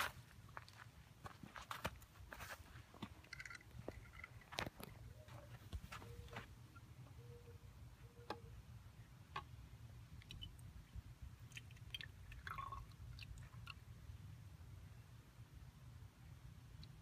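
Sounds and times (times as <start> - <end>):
water trickling and dripping: 10.1 - 13.9.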